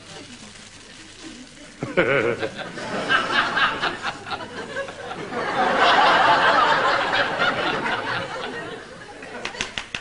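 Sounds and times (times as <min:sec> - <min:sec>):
studio audience laughing: 0:01.8 - 0:09.8.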